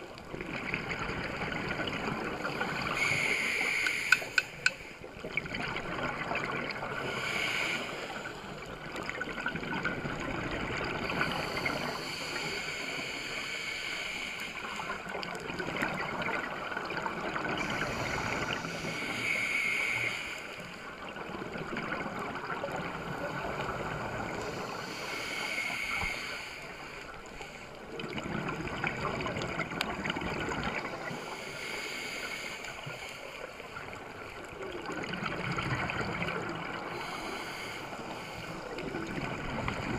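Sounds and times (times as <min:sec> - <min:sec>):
rush of bubbles: 0:00.0 - 0:13.4, 0:14.6 - 0:31.4, 0:33.5 - 0:39.9
regulator inhale hiss: 0:02.5 - 0:05.1, 0:07.0 - 0:08.6, 0:11.1 - 0:15.0, 0:17.6 - 0:20.8, 0:24.2 - 0:27.8, 0:30.8 - 0:33.9, 0:36.7 - 0:38.8.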